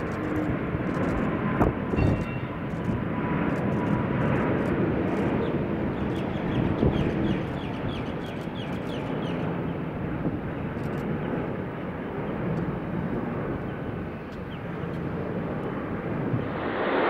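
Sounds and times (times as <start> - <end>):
jet engines roaring: 0.0 - 17.0
bird chirping: 5.4 - 9.5.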